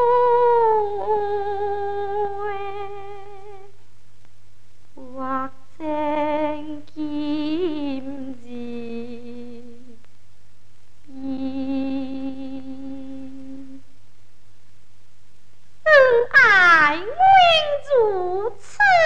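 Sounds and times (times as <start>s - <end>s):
opera singing with vibrato: 0.0s - 3.7s, 5.0s - 10.0s, 11.1s - 13.8s, 15.9s - 19.0s
steady low hum: 0.0s - 19.0s.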